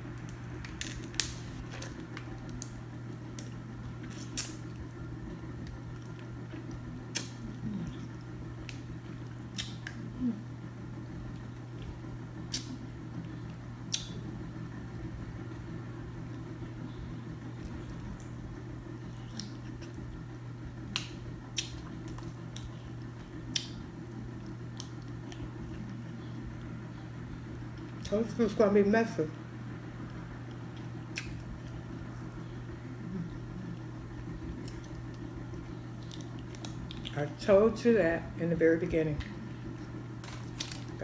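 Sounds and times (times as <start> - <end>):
steady low hum: 0.0 - 41.0
eating sounds: 5.6 - 10.6, 30.0 - 37.3.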